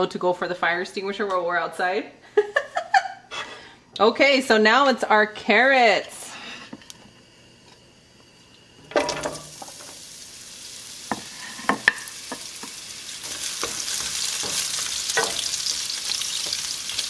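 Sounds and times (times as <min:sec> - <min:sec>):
vegetables sizzling in hot oil: 0:08.0 - 0:17.0
wooden spoon knocking on pan: 0:11.1 - 0:12.8, 0:13.6 - 0:15.5.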